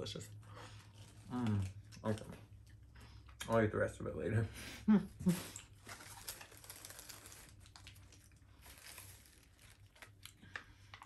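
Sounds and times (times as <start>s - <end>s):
wrapper crinkling: 5.3s - 10.6s.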